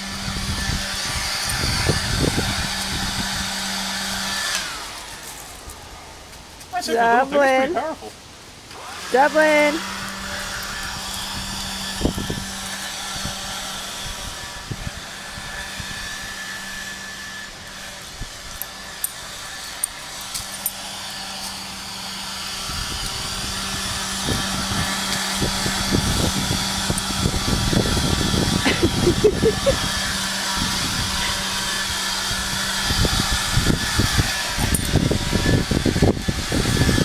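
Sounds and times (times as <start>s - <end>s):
wind buffeting microphone: 0.0s - 4.4s, 9.8s - 16.9s, 22.4s - 37.0s
leaf blower running: 0.0s - 37.0s.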